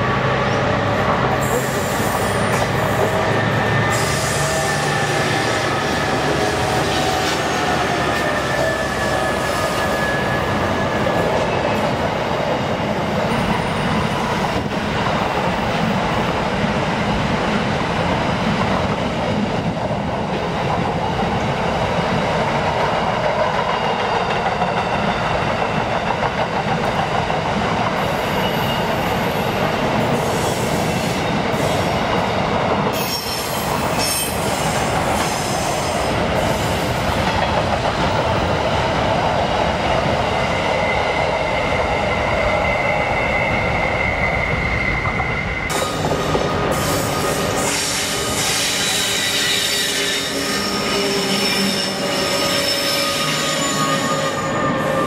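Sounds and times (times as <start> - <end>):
diesel locomotive engines: 0.0 - 55.0
train wheels on rails: 0.0 - 55.0
high wheel squeal: 0.5 - 11.8, 33.0 - 36.8, 40.6 - 55.0.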